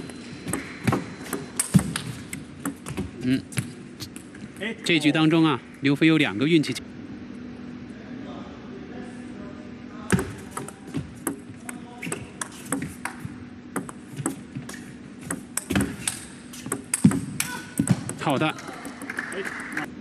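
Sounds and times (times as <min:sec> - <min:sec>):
low hall hum: 0:00.0 - 0:20.0
table tennis ball clicking: 0:13.8 - 0:14.4, 0:15.3 - 0:19.2.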